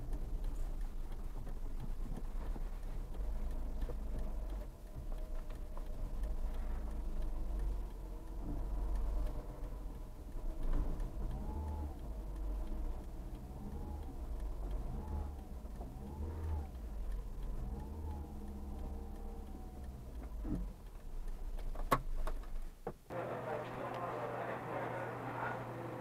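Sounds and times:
sharp clicks: 0.0 - 23.1
car engine running: 0.0 - 26.0
faint whine: 23.1 - 26.0.

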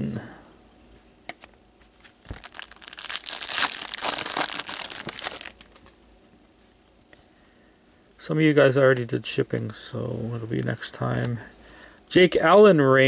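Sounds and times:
foil wrapper crinkling: 2.0 - 5.9.

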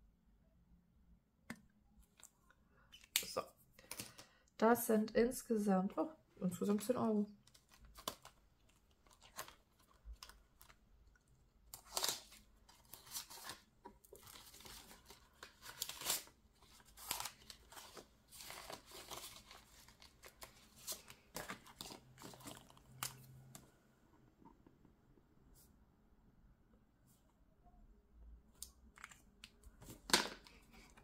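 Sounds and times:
paper rustling and crinkling: 7.4 - 10.8, 11.6 - 23.6.

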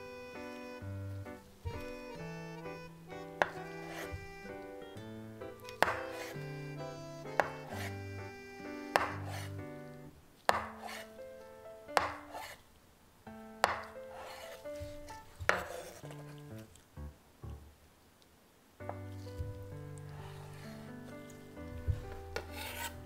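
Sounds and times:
knife slicing and knocking on board: 3.4 - 4.4, 5.7 - 6.4, 7.3 - 8.0, 8.9 - 9.5, 10.5 - 11.1, 12.0 - 12.6, 13.6 - 16.1.

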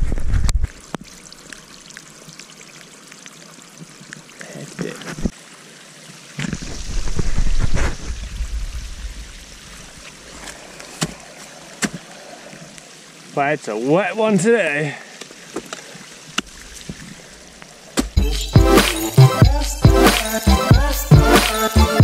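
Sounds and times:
low rumble on microphone: 0.0 - 0.7, 6.5 - 10.1
water trickling over rocks: 0.5 - 18.2.

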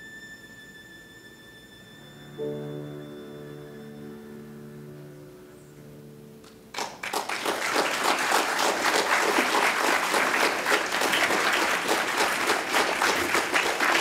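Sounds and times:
audience applauding: 6.7 - 14.0.

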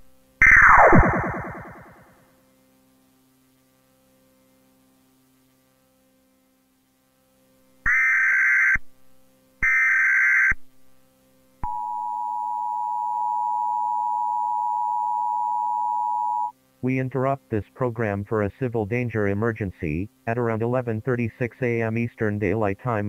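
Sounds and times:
faint low hum: 0.0 - 2.5, 10.7 - 23.0
loud digital data bursts: 0.4 - 2.0
two-tone alert signal: 0.4 - 2.0.

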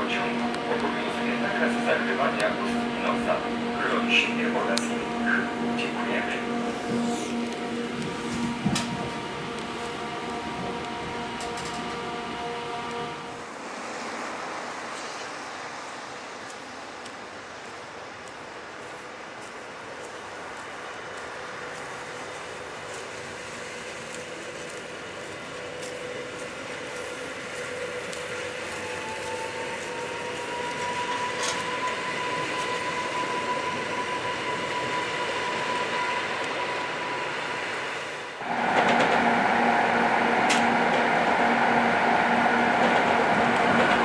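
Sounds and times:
running noise inside train carriage: 0.0 - 44.0
train running over bridge: 0.0 - 44.0
train whine: 0.0 - 44.0.

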